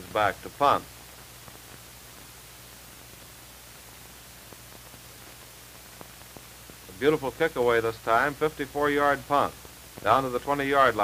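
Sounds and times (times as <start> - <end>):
soundtrack hiss and hum: 0.0 - 11.0.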